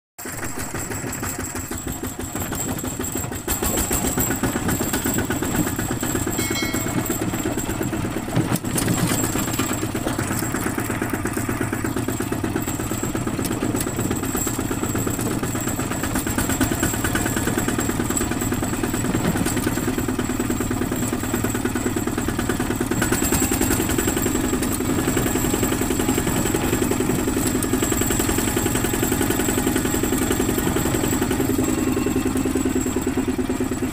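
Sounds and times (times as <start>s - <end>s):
diesel engine chugging: 0.2s - 33.9s.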